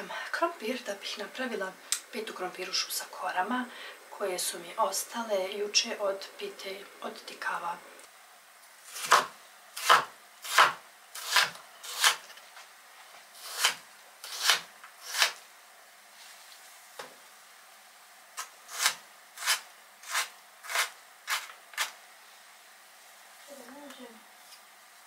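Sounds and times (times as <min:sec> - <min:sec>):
knife cutting potatoes on board: 0:08.9 - 0:12.3, 0:13.4 - 0:15.4, 0:18.4 - 0:22.0.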